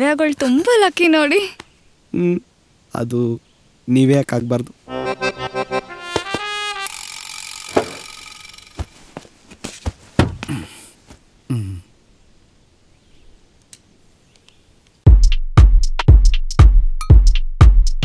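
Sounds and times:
held musical chord: 0:04.9 - 0:07.0.

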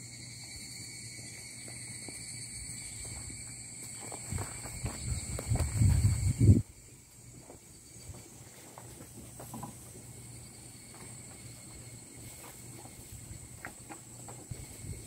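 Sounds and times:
high-pitched insect drone: 0:00.0 - 0:08.6, 0:10.1 - 0:15.0.

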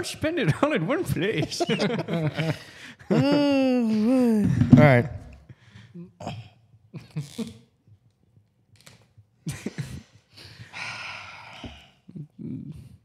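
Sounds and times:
men mumbling: 0:03.1 - 0:05.2
man exhaling breathily: 0:10.3 - 0:12.0.

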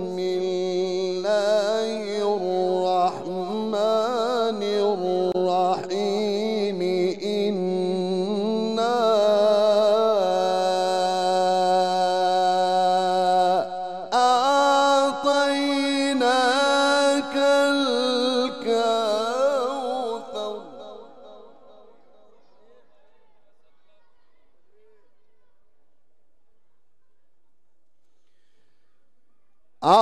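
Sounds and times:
man chanting melodically: 0:00.0 - 0:23.0.

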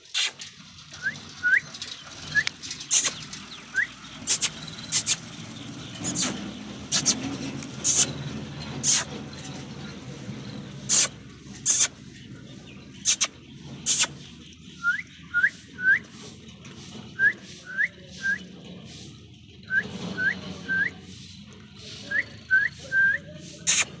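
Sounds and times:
upward whistled chirps: 0:14.8 - 0:16.1, 0:22.1 - 0:23.3.

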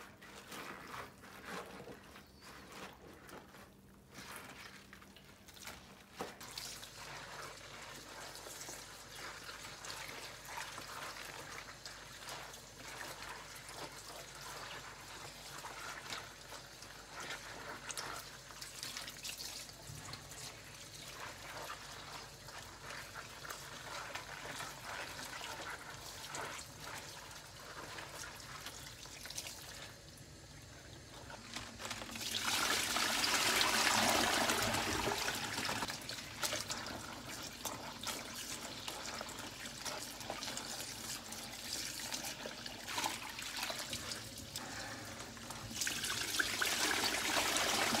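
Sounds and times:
wet rustling and squelching: 0:00.0 - 0:30.0, 0:31.0 - 0:33.2
tap water running: 0:06.2 - 0:48.0.

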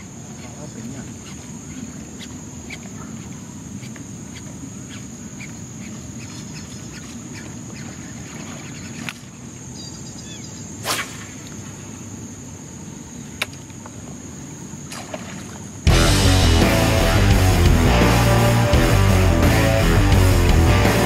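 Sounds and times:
insects buzzing: 0:00.0 - 0:21.0
fishing rod cast swish: 0:10.8 - 0:11.5.

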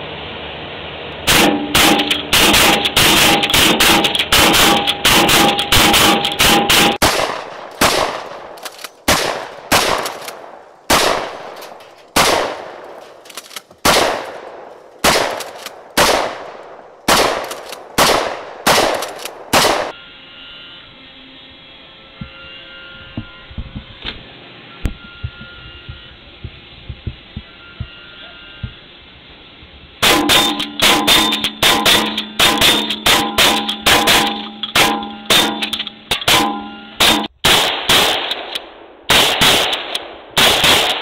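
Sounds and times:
shotgun shots with ringing tail: 0:01.3 - 0:11.6, 0:12.2 - 0:13.1, 0:13.8 - 0:19.9, 0:30.0 - 0:41.0
small clicks: 0:18.9 - 0:19.4.

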